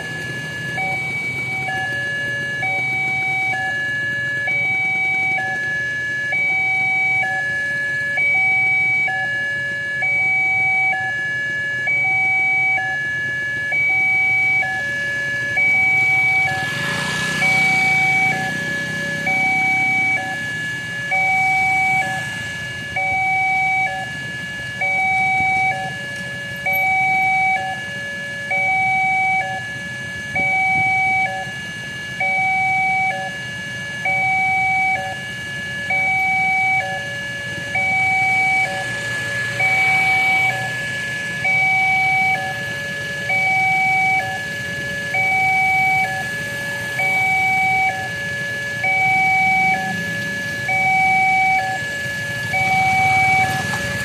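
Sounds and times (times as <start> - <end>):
low engine rumble: 0.0 - 7.4, 35.9 - 54.0
two-tone electronic warning chime: 0.0 - 54.0.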